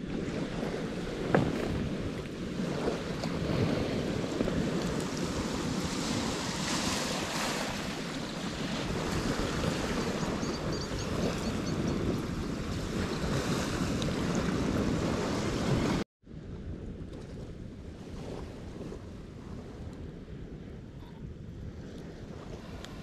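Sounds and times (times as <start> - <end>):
small waves washing onto beach: 0.0 - 16.0, 21.8 - 23.0
wind rumbling on microphone: 0.0 - 23.0.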